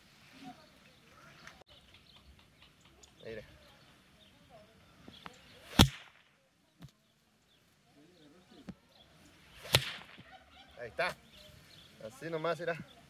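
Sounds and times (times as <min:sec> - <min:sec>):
rope whip cracking: 0:05.6 - 0:06.3, 0:09.6 - 0:10.4
rope swishing: 0:09.6 - 0:10.3.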